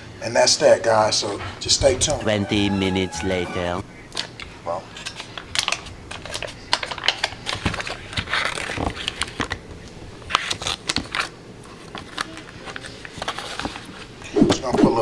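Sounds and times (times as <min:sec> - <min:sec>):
paper wrapper crinkling: 0:05.0 - 0:09.6, 0:10.2 - 0:14.1.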